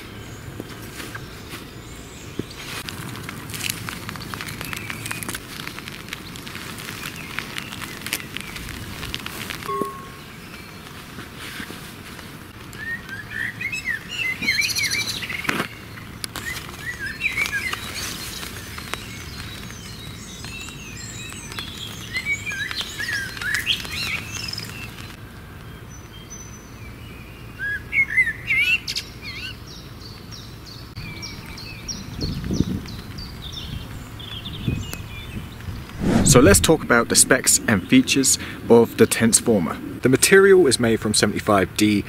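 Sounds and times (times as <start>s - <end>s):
songbirds chirping and whistling: 12.7s - 25.1s.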